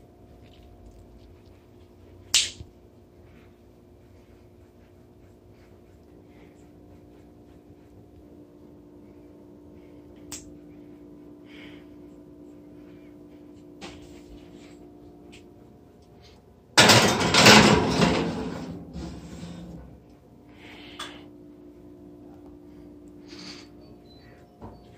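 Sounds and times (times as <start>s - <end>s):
steady low hum: 0.0s - 24.9s
oven door clattering open: 16.8s - 19.0s.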